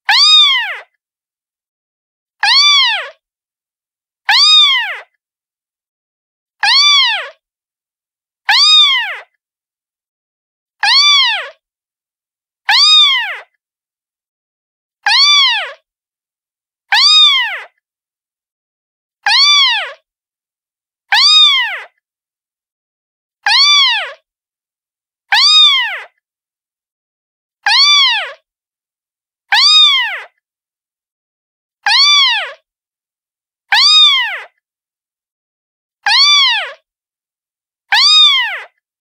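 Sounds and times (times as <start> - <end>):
cat meowing: 0.1 - 0.8, 2.4 - 3.1, 4.3 - 5.0, 6.6 - 7.3, 8.5 - 9.2, 10.8 - 11.5, 12.7 - 13.4, 15.1 - 15.8, 16.9 - 17.7, 19.3 - 20.0, 21.1 - 21.9, 23.5 - 24.2, 25.3 - 26.1, 27.7 - 28.4, 29.5 - 30.3, 31.9 - 32.6, 33.7 - 34.5, 36.1 - 36.8, 37.9 - 38.7.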